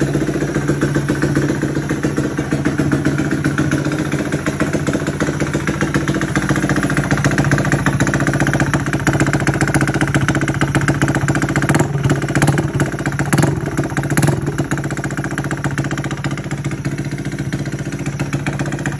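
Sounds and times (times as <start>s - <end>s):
motorcycle engine idling: 0.0s - 18.9s.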